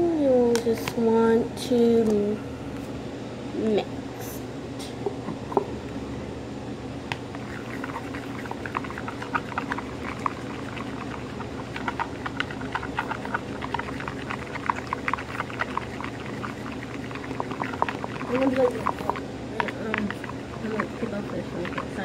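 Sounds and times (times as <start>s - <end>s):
steady low hum: 0.0s - 22.0s
wet slime squelching and clicking: 7.2s - 22.0s.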